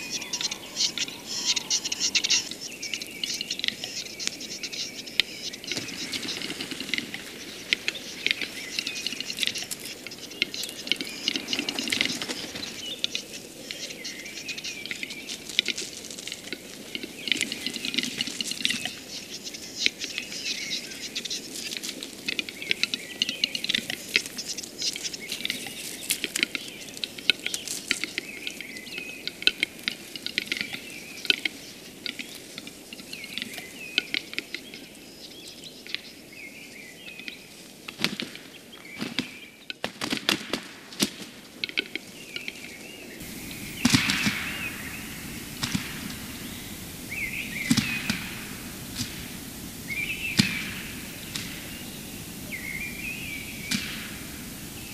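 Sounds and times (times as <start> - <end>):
bird chirping calls: 0.0 - 15.5, 42.2 - 54.9
bird clicking song: 0.0 - 36.2, 41.6 - 54.9.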